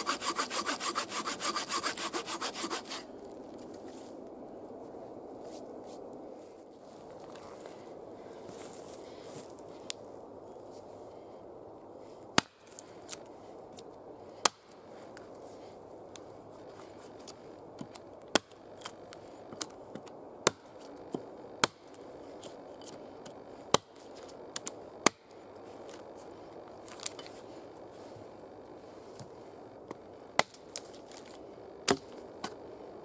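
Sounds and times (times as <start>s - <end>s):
background hiss: 0.0s - 33.0s
hatchet chopping log: 12.4s - 12.8s, 14.4s - 14.7s, 17.8s - 18.6s, 19.6s - 21.9s, 22.8s - 24.0s, 24.6s - 25.2s, 30.4s - 30.6s, 31.8s - 32.6s.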